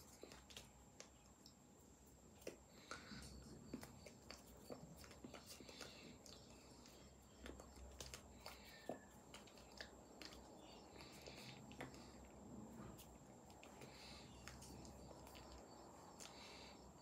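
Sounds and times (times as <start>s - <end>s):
hands tapping and rustling: 2.3s - 16.4s
breaths: 2.7s - 3.5s, 10.6s - 12.6s, 13.6s - 15.1s, 16.2s - 17.0s
mouth clicks and lip smacks: 3.7s - 12.1s.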